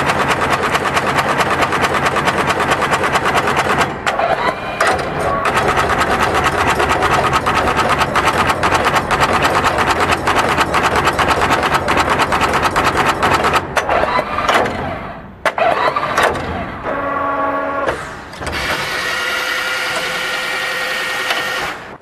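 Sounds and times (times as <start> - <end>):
insertion machine clattering: 0.0 - 17.2, 17.8 - 22.0.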